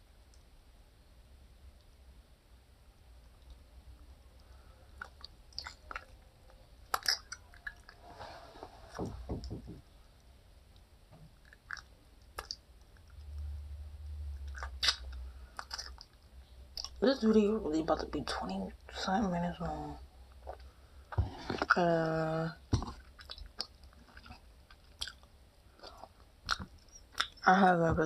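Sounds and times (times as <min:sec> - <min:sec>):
person chewing and biting: 0:14.5 - 0:16.2, 0:22.8 - 0:27.4.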